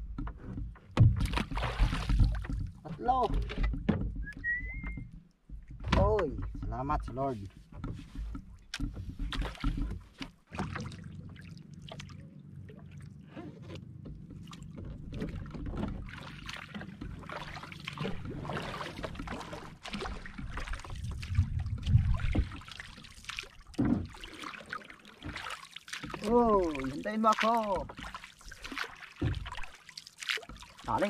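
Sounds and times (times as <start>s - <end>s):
water splashing around canoe: 0.0s - 31.0s
wooden paddle pulling through water: 0.0s - 31.0s
low rumble: 20.6s - 22.6s.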